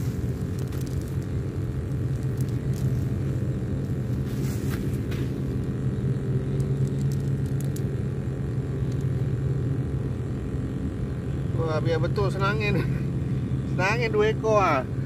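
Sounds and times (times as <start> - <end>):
steady low rumble: 0.0 - 15.0
faint light rustles: 2.5 - 5.7.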